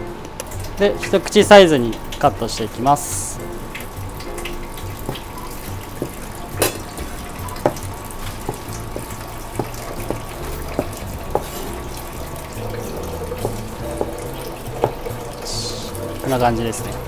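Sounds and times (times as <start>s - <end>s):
cleaver chopping on cutting board: 7.6s - 11.8s.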